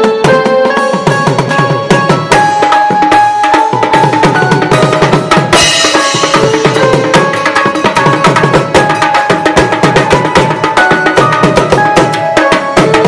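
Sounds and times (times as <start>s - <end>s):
fast tom drumming: 0.0s - 13.0s
hand drum: 0.0s - 13.0s
cymbal crash: 5.6s - 7.8s.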